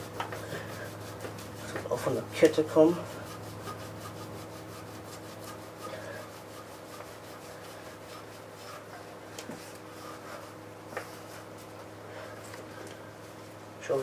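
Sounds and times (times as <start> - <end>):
hand rubbing a wheel: 0.0 - 13.6
steady low hum: 0.0 - 14.0.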